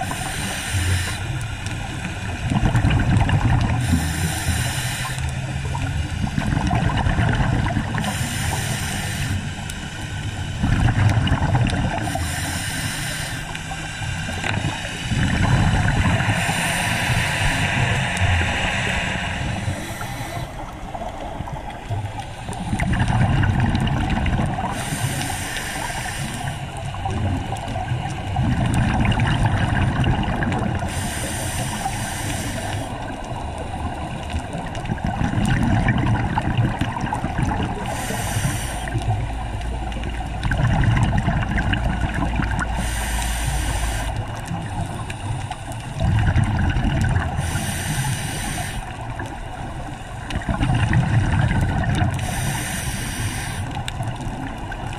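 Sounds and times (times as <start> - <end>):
regulator inhale hiss: 0.0 - 2.2, 3.8 - 5.7, 7.9 - 10.7, 11.9 - 23.0, 24.6 - 27.0, 30.8 - 34.0, 37.7 - 39.2, 42.6 - 46.0, 47.2 - 50.3, 52.0 - 54.3
exhaled bubbles underwater: 0.0 - 54.9.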